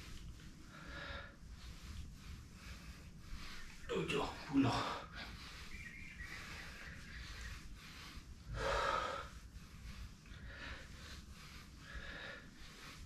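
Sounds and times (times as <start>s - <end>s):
man breathing hard: 0.0s - 13.0s.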